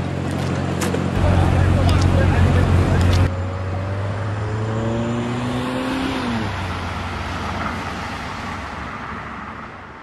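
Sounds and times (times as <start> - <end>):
car passing by: 1.3 - 9.9.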